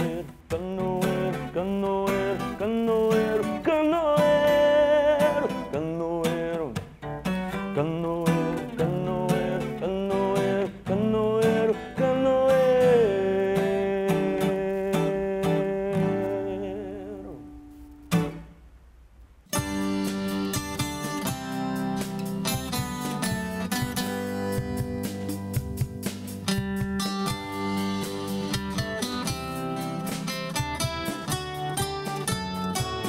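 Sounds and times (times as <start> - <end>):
man singing: 0.0 - 17.6
acoustic guitar strumming: 0.0 - 18.8, 19.5 - 33.0.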